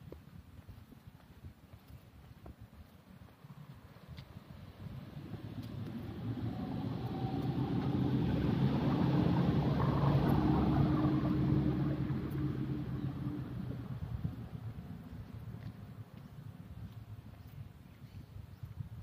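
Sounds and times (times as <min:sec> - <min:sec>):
vehicle engine passing: 0:04.6 - 0:16.2.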